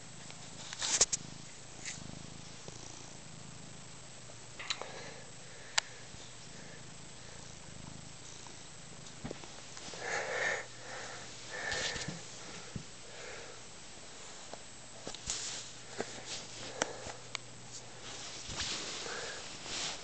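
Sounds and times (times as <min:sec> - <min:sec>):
cat purring: 0:00.0 - 0:13.6.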